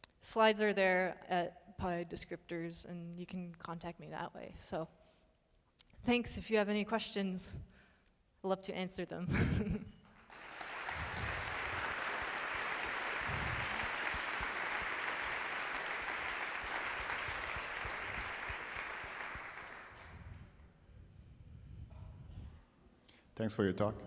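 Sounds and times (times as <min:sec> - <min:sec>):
audience clapping: 0:10.1 - 0:20.5.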